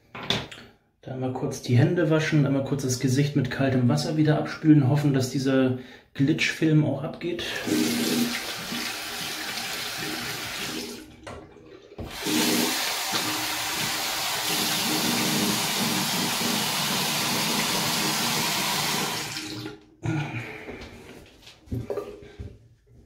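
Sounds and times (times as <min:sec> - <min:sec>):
sink tap running: 0:07.6 - 0:19.8.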